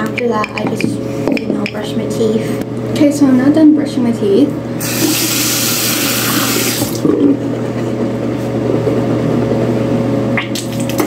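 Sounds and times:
steady low hum: 0.0s - 11.0s
running tap hiss: 4.8s - 7.0s.

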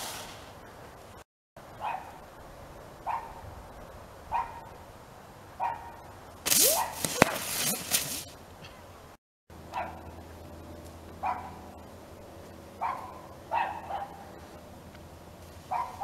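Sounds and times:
spinner firework hissing: 0.0s - 0.6s
dog barking: 1.8s - 2.2s, 3.0s - 3.4s, 4.3s - 4.7s, 5.6s - 6.0s, 6.7s - 7.4s, 9.7s - 10.1s, 11.2s - 11.6s, 12.8s - 14.4s, 15.7s - 16.0s.

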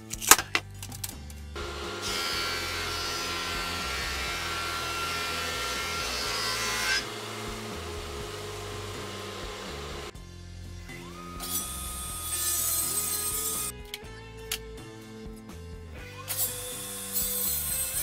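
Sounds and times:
planer running unloaded: 1.6s - 10.1s
power planer cutting wood: 1.6s - 10.1s, 10.9s - 13.7s, 16.3s - 18.0s.

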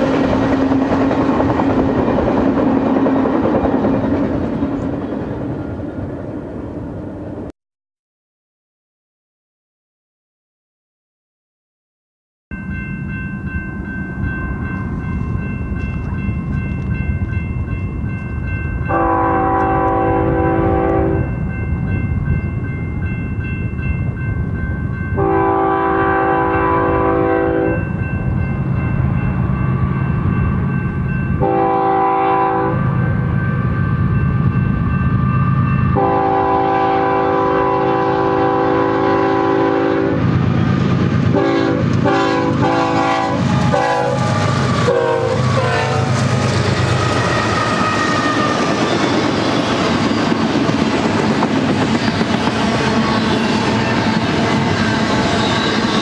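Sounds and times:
train horn blasts: 18.9s - 21.4s, 25.2s - 27.9s, 31.4s - 34.1s, 35.9s - 40.3s, 41.3s - 46.3s
diesel locomotive rumble: 25.3s - 56.0s.

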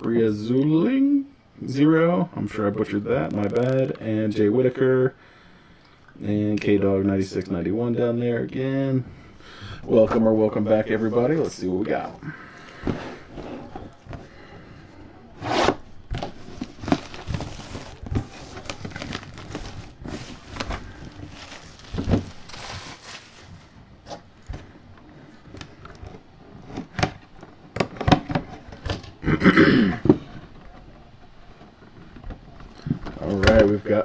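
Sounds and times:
box handling clicks and scrapes: 10.8s - 14.7s, 15.3s - 29.1s
plastic wrap crinkling and tearing: 16.2s - 23.8s.

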